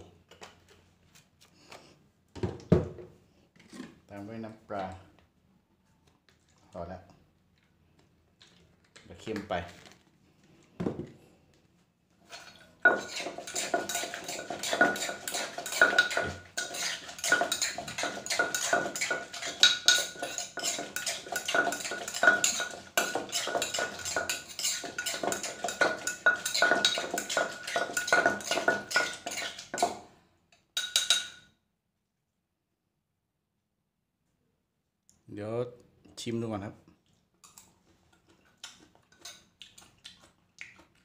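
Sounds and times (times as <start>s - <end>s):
metal spoon clinking in a mortar: 12.3s - 30.0s, 30.8s - 31.5s.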